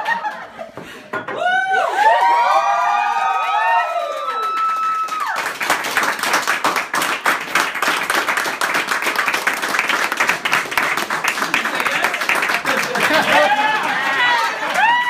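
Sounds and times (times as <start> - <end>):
people clapping: 0.0 - 0.7, 1.7 - 15.0
people cheering: 1.3 - 6.0, 10.8 - 15.0.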